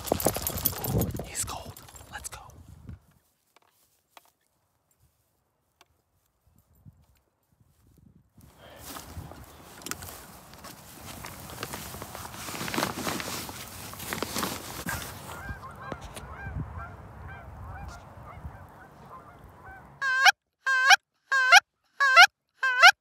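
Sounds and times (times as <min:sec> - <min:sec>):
dry grass rustling: 0:00.0 - 0:20.0
distant geese honking: 0:14.9 - 0:22.9
goose call honks: 0:14.9 - 0:23.0.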